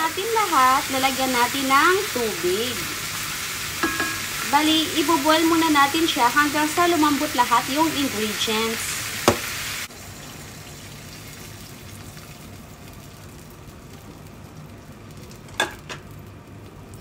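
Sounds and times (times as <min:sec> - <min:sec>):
pot of water hissing: 0:00.0 - 0:13.6.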